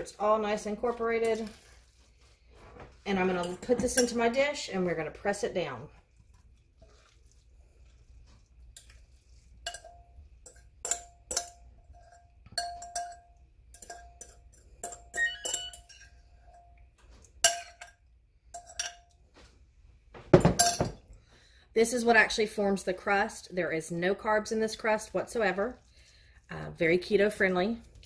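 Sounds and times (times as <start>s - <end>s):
metal fork clinking against glass: 9.7s - 16.7s, 18.6s - 19.2s.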